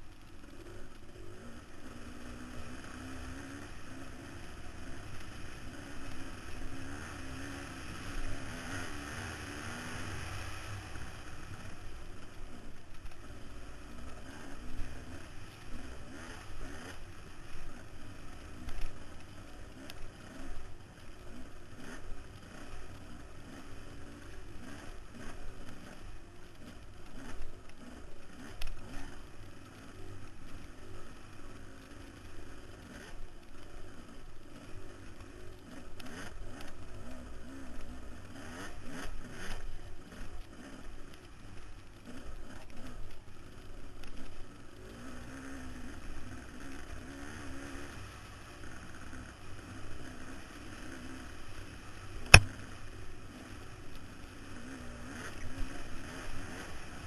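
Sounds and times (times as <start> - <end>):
motorcycle engine revving: 0.5 - 11.6, 13.5 - 18.8, 48.7 - 53.6.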